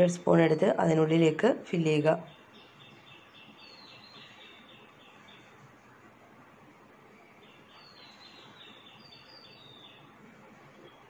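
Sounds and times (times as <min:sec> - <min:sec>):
low steady hiss: 0:00.0 - 0:11.0
high bird chirps: 0:02.2 - 0:05.6, 0:07.2 - 0:10.1.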